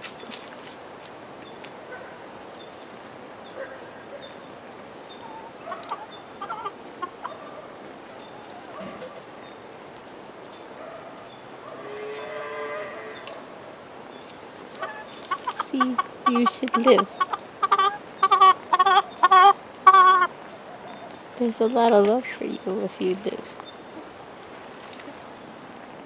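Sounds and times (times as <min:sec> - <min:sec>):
hen clucking: 0:05.1 - 0:09.3, 0:14.7 - 0:21.2
hen calls: 0:05.2 - 0:08.8, 0:14.7 - 0:21.2.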